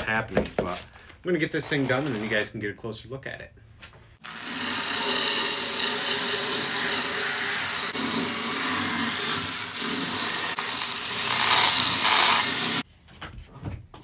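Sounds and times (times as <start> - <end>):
drill motor hum: 4.2 - 12.8.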